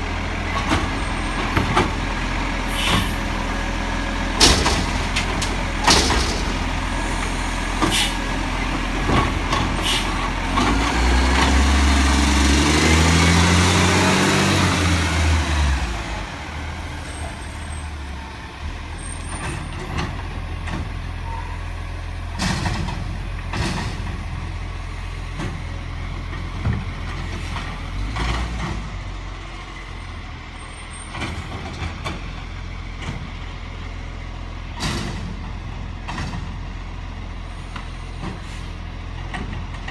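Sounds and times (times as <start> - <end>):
diesel engine revving: 0.0 - 39.9
air brakes hissing: 2.7 - 3.3, 7.0 - 8.3, 9.8 - 10.2, 37.5 - 38.8
metal clanks: 4.4 - 6.8.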